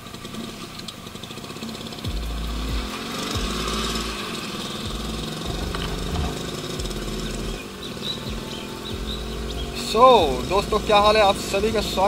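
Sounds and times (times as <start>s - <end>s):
two-stroke motorcycle engine: 0.0s - 12.0s.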